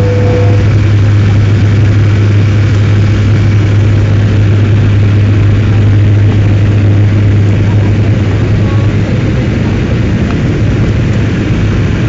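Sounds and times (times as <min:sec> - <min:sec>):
airliner cabin engine drone: 0:00.0 - 0:12.0
low hum: 0:00.0 - 0:12.0.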